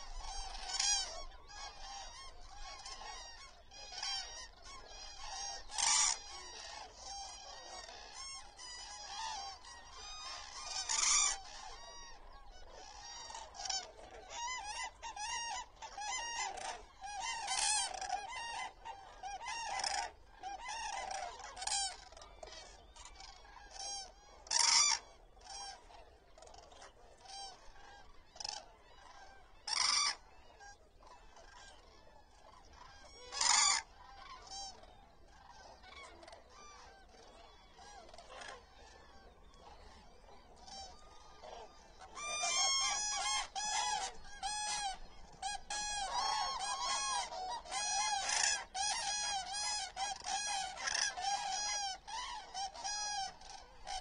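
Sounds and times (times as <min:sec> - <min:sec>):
flock of cranes calling: 0:00.0 - 0:54.0.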